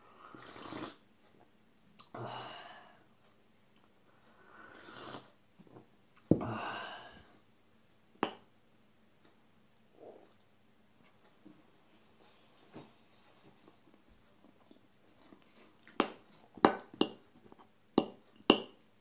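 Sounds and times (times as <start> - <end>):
noisy sips from a mug: 0.3 - 1.0, 4.6 - 5.4.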